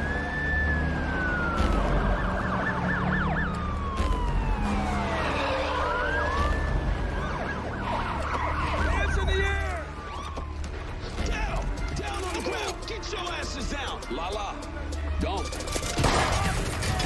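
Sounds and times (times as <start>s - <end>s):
siren yelping: 0.0s - 10.7s
police sirens wailing: 0.0s - 17.0s.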